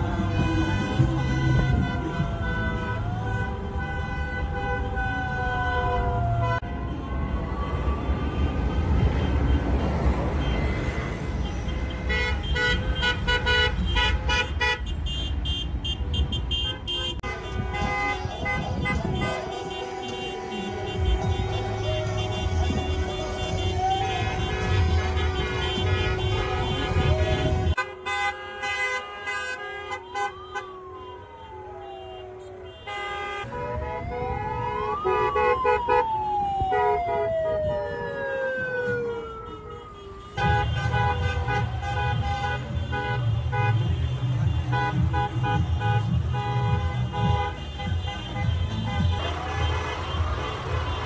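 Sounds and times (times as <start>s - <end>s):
car horns honking: 0.0s - 37.4s, 38.8s - 51.0s
engine and traffic rumble: 0.0s - 51.0s
siren wailing: 4.8s - 8.4s, 18.1s - 27.8s, 29.8s - 32.8s, 33.4s - 42.4s.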